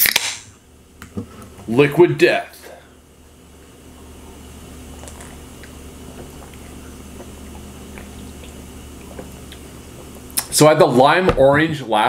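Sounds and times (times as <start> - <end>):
dishwasher hum: 0.5 - 12.0
person sipping and swallowing: 4.0 - 10.5.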